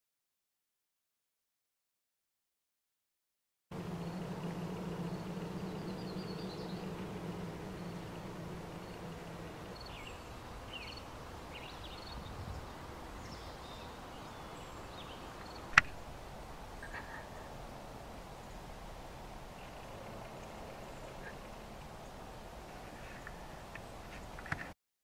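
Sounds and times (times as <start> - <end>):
low steady hum: 3.7 - 24.6
bird chirps: 4.0 - 15.8, 19.5 - 24.1
sharp click: 15.7 - 16.0.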